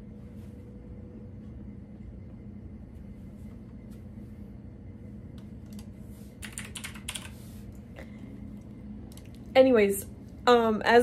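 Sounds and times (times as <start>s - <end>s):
low room hum: 0.0s - 11.0s
computer keyboard typing: 5.6s - 7.4s.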